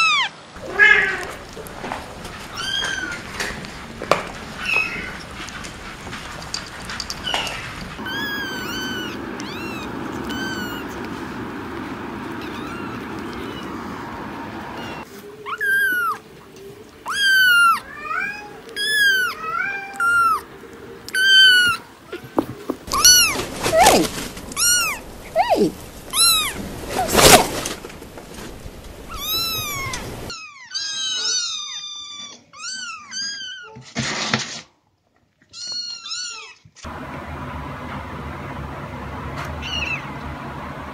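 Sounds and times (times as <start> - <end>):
kittens meowing: 0.0 - 5.3, 6.8 - 16.3, 17.0 - 20.5, 21.1 - 22.3, 22.9 - 27.7, 28.3 - 33.7, 39.6 - 40.0.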